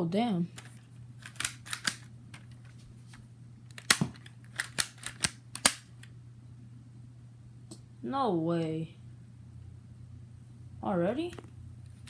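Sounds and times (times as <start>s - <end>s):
plastic toy gun clacks: 0.6s - 2.5s, 3.7s - 5.9s.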